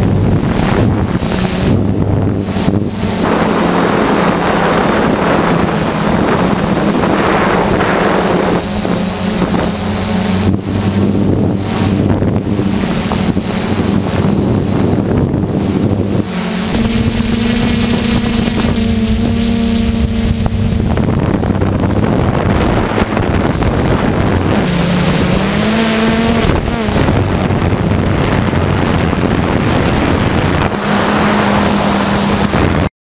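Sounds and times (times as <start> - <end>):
drone motors and propellers droning: 0.0 - 32.9
wind buffeting microphone: 0.0 - 32.9.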